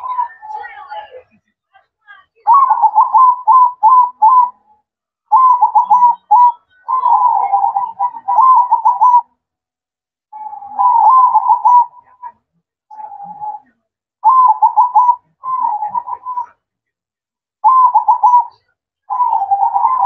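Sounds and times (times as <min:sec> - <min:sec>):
dove cooing: 0:02.5 - 0:04.5, 0:05.3 - 0:09.3, 0:10.4 - 0:12.0, 0:12.9 - 0:13.6, 0:14.2 - 0:16.5, 0:17.6 - 0:20.0.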